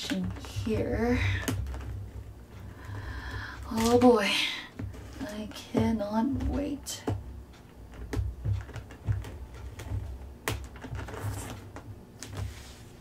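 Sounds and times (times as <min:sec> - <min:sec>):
sharp clicks and taps: 0:04.8 - 0:11.9
packing material rustling: 0:08.4 - 0:13.0.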